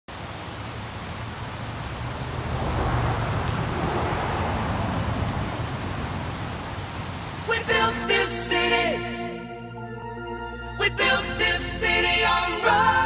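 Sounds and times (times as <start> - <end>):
rushing traffic-like noise: 0.1 - 8.0.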